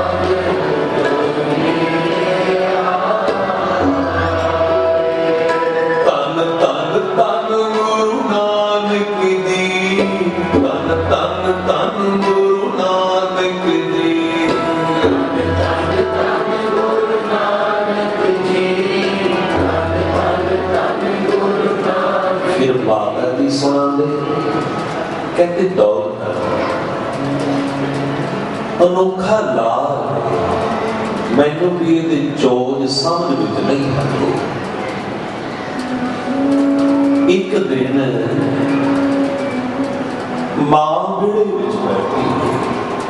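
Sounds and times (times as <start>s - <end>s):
men singing a hymn: 0.0s - 24.8s
harmonium chords: 0.0s - 43.0s.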